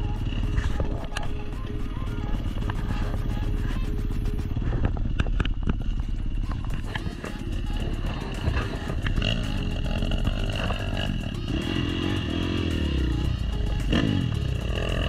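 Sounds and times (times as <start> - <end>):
dirt bike engine revving: 5.8 - 15.0.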